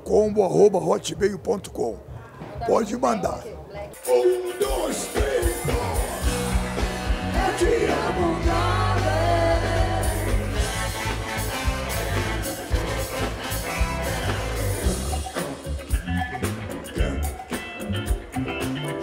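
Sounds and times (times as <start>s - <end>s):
person singing: 4.0s - 6.4s, 7.2s - 11.2s
bass line: 4.1s - 19.0s.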